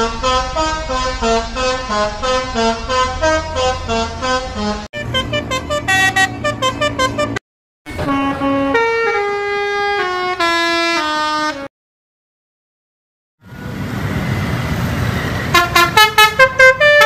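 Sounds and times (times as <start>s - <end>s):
musical air horns playing tunes: 0.0s - 11.7s, 15.5s - 17.0s.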